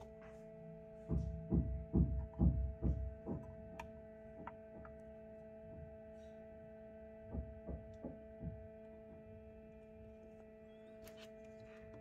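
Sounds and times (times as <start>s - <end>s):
incubator humming: 0.0s - 12.0s
soft knocks of fingers on panel: 7.3s - 8.7s.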